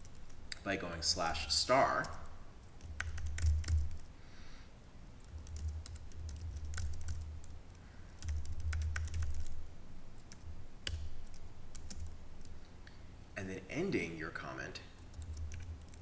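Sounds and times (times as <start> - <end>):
typing on computer keyboard: 2.0 - 4.1, 5.2 - 9.6, 10.2 - 12.5, 15.0 - 16.0.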